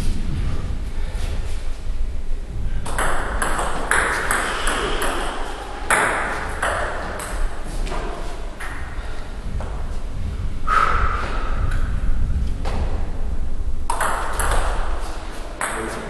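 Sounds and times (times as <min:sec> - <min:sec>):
low hum: 0:00.0 - 0:16.0
table tennis ball hits: 0:02.8 - 0:08.0, 0:13.9 - 0:16.0.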